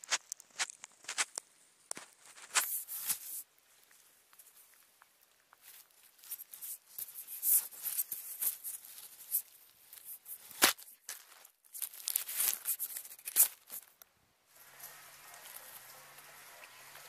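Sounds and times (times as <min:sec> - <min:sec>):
leaves crackling and rustling: 0:00.0 - 0:17.0
fur rubbing on microphone: 0:02.2 - 0:03.5, 0:05.6 - 0:11.0.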